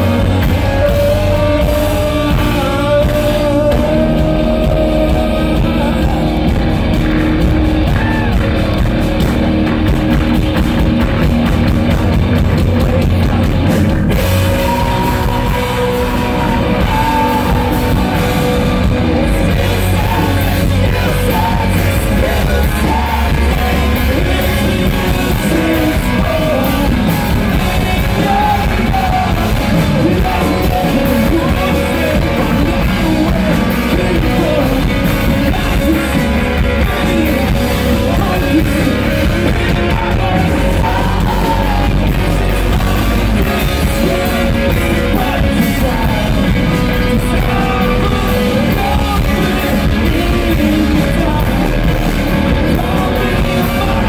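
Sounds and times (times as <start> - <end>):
person singing and shouting: 0.0 - 8.8, 12.6 - 54.0
live rock band playing: 0.0 - 54.0.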